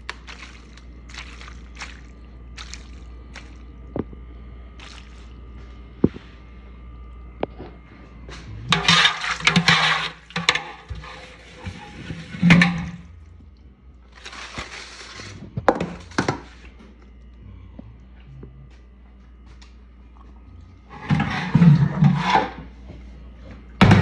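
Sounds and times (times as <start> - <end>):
wet splashing: 0.0 - 3.9, 4.8 - 5.5.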